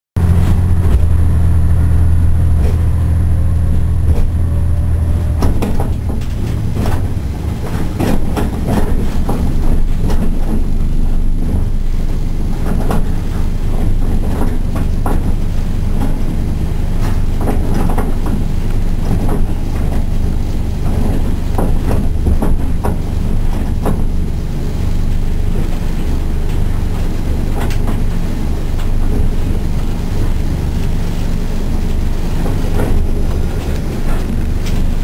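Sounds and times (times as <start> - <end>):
diesel engine drone: 0.2 - 35.0
railcar rolling rumble: 0.2 - 35.0
wheels clicking over rail joints: 3.6 - 11.8, 12.6 - 24.3.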